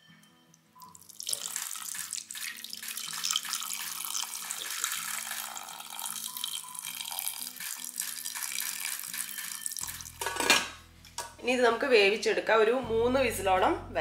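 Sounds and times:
water pouring into metal pot: 0.8s - 10.4s.

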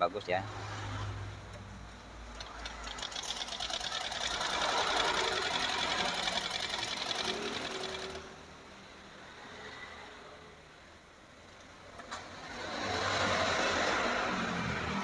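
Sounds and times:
sewing machine stitching: 2.3s - 8.4s.

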